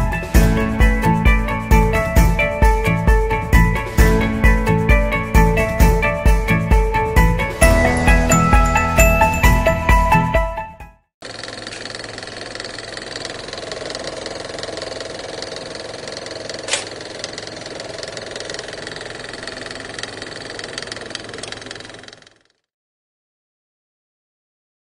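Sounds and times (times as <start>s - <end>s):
sharp click: 16.6s - 16.9s.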